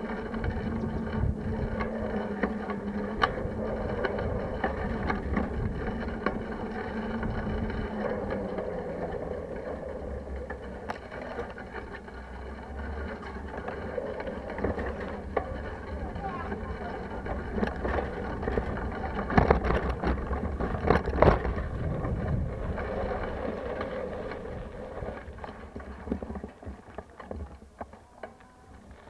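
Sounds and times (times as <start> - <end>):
bike clicks and rattles: 0.0 - 29.0
tyre rumble on road: 0.0 - 29.0
wind rushing: 21.0 - 25.2.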